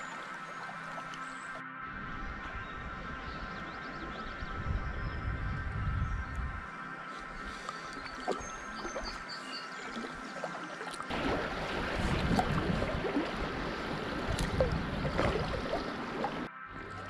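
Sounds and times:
rushing choppy river water: 0:00.0 - 0:01.8, 0:06.8 - 0:17.0
paddle strokes splashing: 0:07.1 - 0:17.0.

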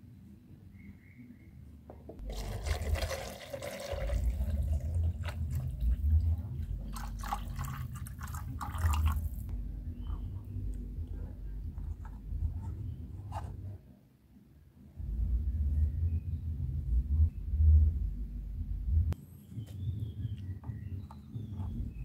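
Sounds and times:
water pouring into a plastic bottle: 0:02.2 - 0:09.5.

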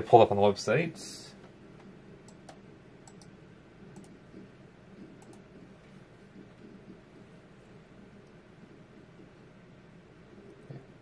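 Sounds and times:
low room noise: 0:00.0 - 0:11.0
computer mouse clicks: 0:01.8 - 0:04.4, 0:05.0 - 0:05.5.

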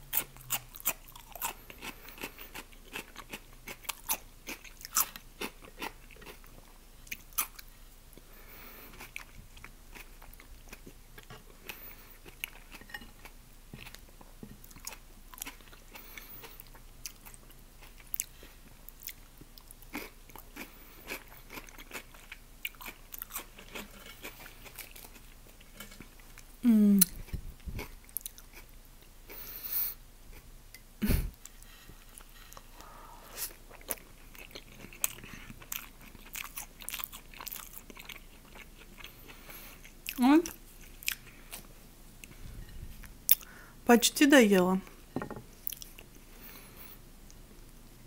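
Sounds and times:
chewing and biting: 0:00.1 - 0:07.7, 0:14.6 - 0:26.4, 0:33.7 - 0:41.7.

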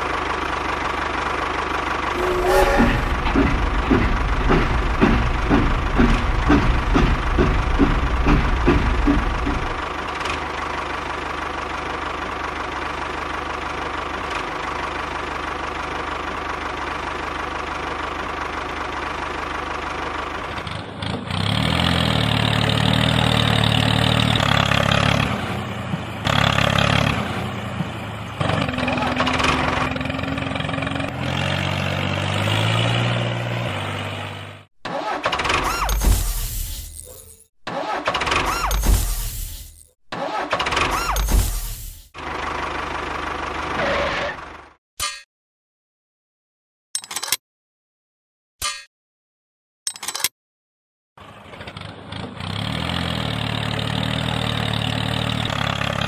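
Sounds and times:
tractor engine running: 0:00.0 - 0:36.2, 0:37.7 - 0:43.8.

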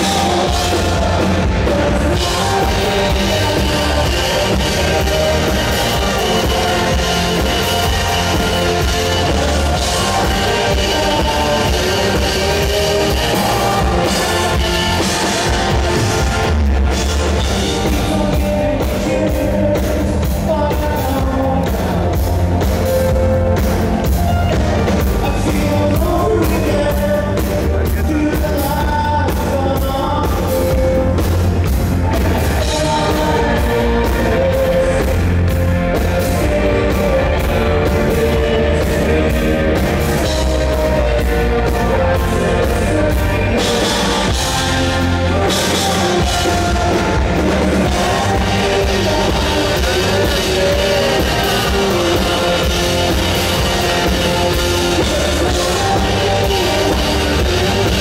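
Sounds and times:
bass guitar: 0:00.0 - 0:58.0
distorted electric guitars: 0:00.0 - 0:58.0
drum kit beat: 0:00.0 - 0:58.0
man singing: 0:00.0 - 0:58.0.

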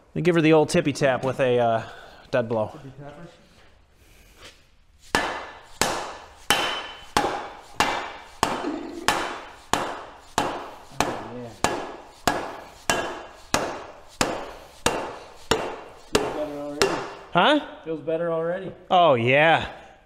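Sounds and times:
hammer knocking on metal cylinder: 0:05.2 - 0:17.2.

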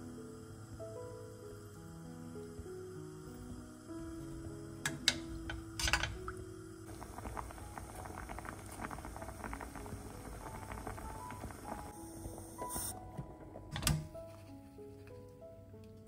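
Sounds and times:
water boiling hard crackling: 0:00.1 - 0:15.0.

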